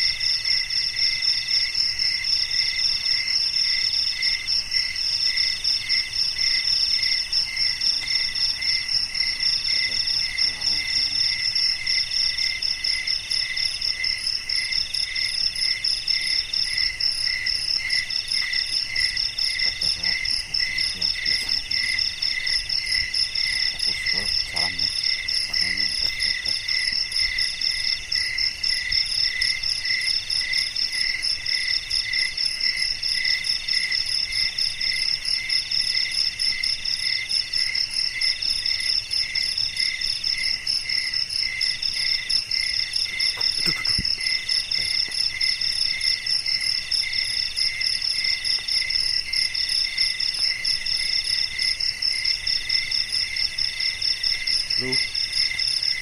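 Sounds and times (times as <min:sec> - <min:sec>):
night insects trilling: 0:00.0 - 0:56.0.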